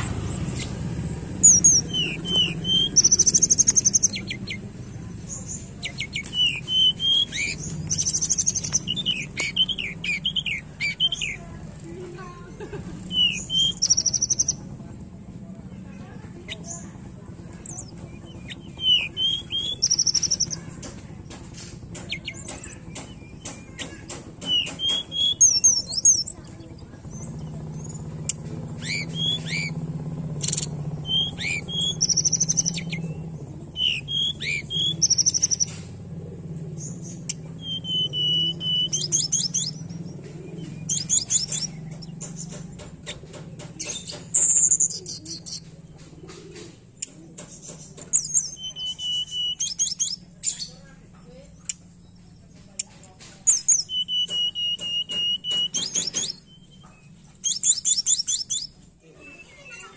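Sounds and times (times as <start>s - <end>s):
bird singing whistles and trills: 0.4s - 11.4s, 13.1s - 14.7s, 17.6s - 20.7s, 22.1s - 26.5s, 27.1s - 35.8s, 36.8s - 43.2s, 47.8s - 50.8s, 53.4s - 59.9s.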